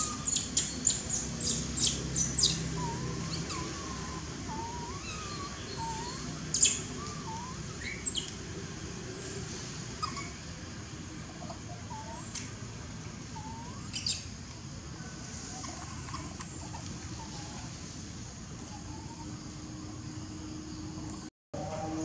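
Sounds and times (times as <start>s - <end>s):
small animals chirping and squeaking: 0.0s - 12.6s, 13.3s - 17.8s
outdoor background noise: 0.0s - 22.0s.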